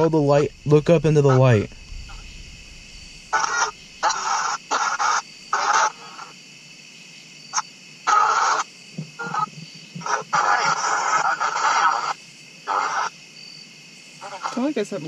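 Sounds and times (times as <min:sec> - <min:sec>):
radio static bursts: 0:00.0 - 0:06.3
radio hiss: 0:00.0 - 0:06.4.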